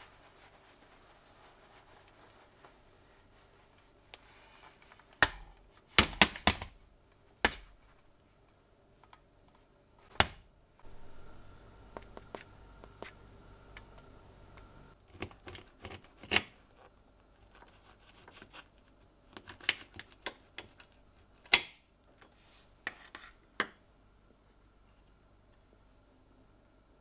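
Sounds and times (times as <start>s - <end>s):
crust crackling under knife: 7.4s - 8.0s, 15.0s - 21.9s.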